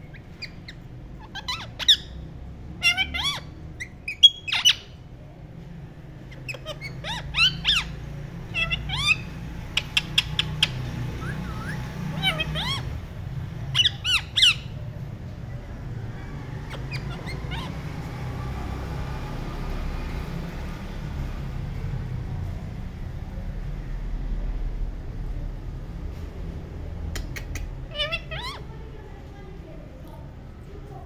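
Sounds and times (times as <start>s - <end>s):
parakeets squawking: 0.0s - 5.1s, 6.1s - 15.4s, 16.0s - 19.6s, 27.5s - 28.9s.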